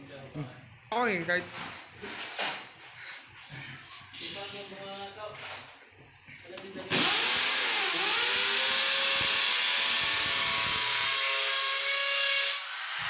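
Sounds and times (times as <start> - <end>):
electric drill boring into wall: 6.9 - 13.0.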